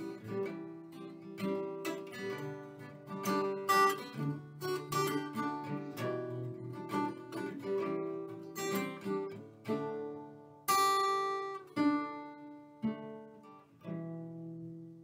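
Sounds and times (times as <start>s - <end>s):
acoustic guitar chords strummed: 0.0s - 15.0s.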